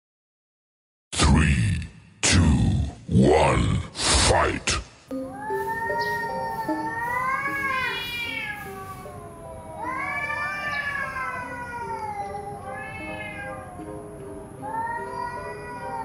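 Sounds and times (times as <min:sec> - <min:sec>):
cats yowling: 0:05.3 - 0:16.0.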